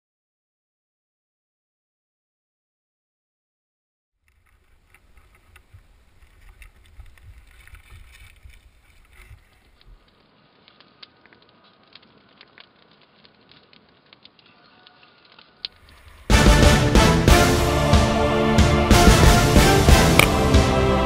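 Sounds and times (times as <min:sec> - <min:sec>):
campfire crackling and popping: 0:04.2 - 0:21.0
wind rumbling on microphone: 0:04.4 - 0:10.1.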